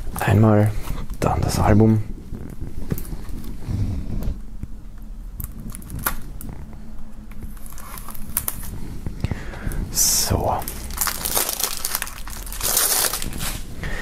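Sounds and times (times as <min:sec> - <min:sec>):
knife cutting plastic shrink-wrap: 0:10.6 - 0:13.6.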